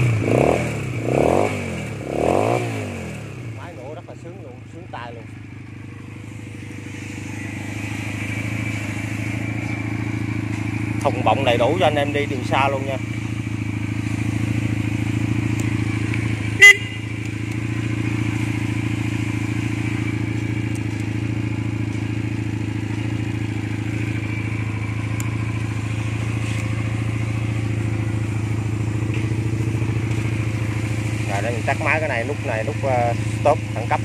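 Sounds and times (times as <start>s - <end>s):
motorcycle engine idling: 0.0s - 34.0s
horn beep: 16.4s - 17.2s.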